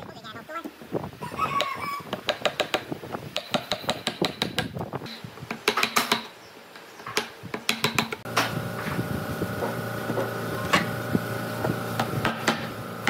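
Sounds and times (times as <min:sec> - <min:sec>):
steady mechanical hum: 0:06.4 - 0:13.0.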